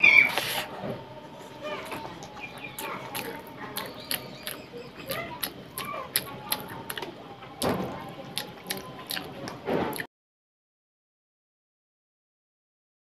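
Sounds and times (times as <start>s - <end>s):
wet squelches of eating by hand: 0.0s - 10.1s.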